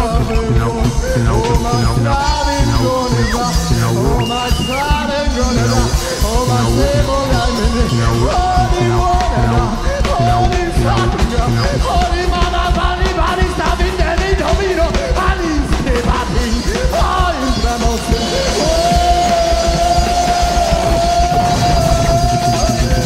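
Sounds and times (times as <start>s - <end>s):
electronic music: 0.0s - 23.0s
fast pulsing drum beat: 0.0s - 23.0s
man singing: 0.0s - 23.0s
trumpet: 0.0s - 23.0s.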